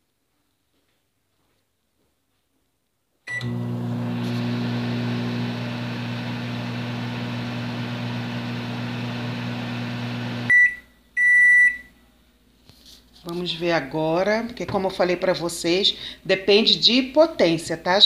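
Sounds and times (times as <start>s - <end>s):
microwave beeps: 3.3s - 4.0s, 10.1s - 11.9s
microwave humming with fan: 3.3s - 10.5s.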